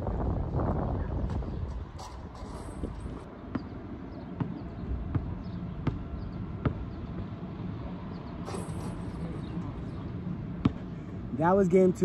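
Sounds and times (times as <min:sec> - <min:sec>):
basketball bouncing on asphalt: 0:03.3 - 0:07.2, 0:10.5 - 0:10.9.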